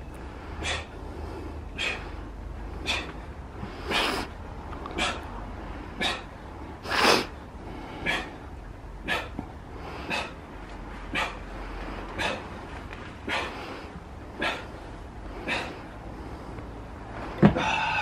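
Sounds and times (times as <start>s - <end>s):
man exhaling forcefully: 0.6s - 1.0s, 1.7s - 2.1s, 2.8s - 4.4s, 6.0s - 8.4s, 10.0s - 10.4s, 15.4s - 15.9s, 17.4s - 18.0s.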